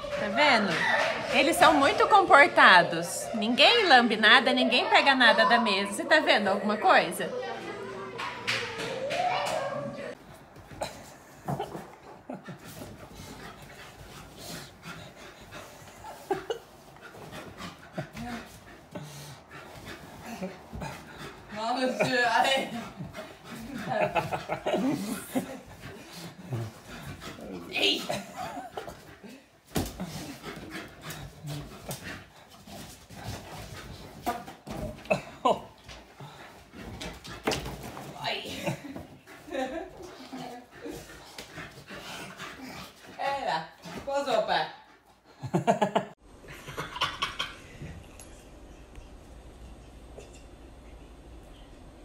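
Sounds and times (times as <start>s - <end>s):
dog panting: 10.1s - 35.0s, 35.6s - 45.7s.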